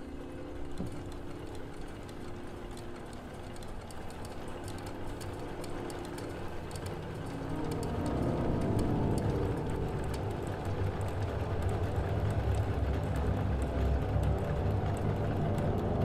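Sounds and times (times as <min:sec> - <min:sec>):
scattered clicks: 0:00.7 - 0:16.0
crackling electronic texture: 0:06.2 - 0:16.0
low organ notes: 0:07.0 - 0:12.8.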